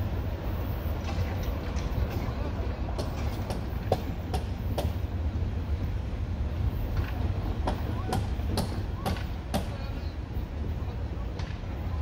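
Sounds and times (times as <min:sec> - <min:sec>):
train rumbling past: 0:00.0 - 0:12.0
train wheel clacks: 0:01.0 - 0:05.0, 0:06.8 - 0:10.0.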